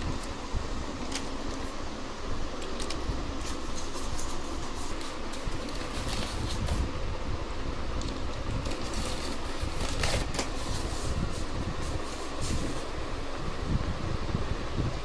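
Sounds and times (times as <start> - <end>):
packaging clicks and rustles: 0.0 - 1.8, 2.4 - 6.8, 8.0 - 11.1
fan-like whoosh with low rumble: 0.0 - 15.0.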